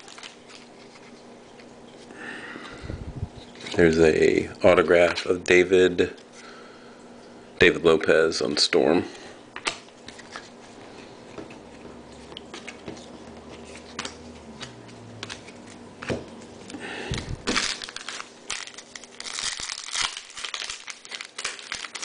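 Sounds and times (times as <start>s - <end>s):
cards clicking and rustling: 0.0s - 1.2s, 11.3s - 22.0s
foil wrapper crinkling and tearing: 0.0s - 1.2s, 17.1s - 22.0s.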